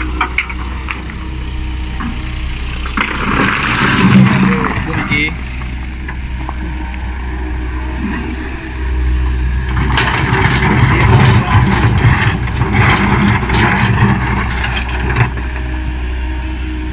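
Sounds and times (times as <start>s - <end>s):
excavator diesel engine: 0.0s - 16.9s
rocks clattering and scraping: 2.8s - 6.8s, 9.6s - 15.7s.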